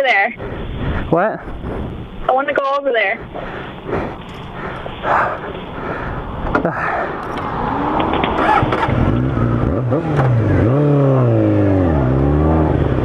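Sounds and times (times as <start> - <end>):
motorcycle engine accelerating: 6.3 - 13.0.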